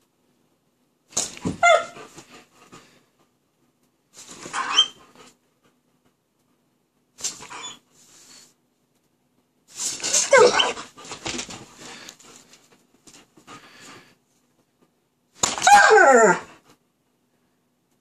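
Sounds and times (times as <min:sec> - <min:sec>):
dog whining: 0:01.4 - 0:02.1, 0:04.4 - 0:05.3, 0:07.4 - 0:07.9, 0:10.0 - 0:11.0, 0:15.5 - 0:16.6.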